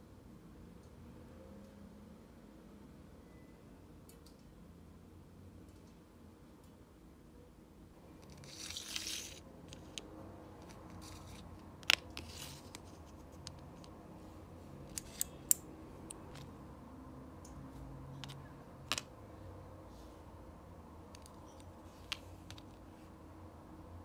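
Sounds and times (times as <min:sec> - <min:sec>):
plastic pieces scraping: 0:08.2 - 0:10.0, 0:10.6 - 0:13.6.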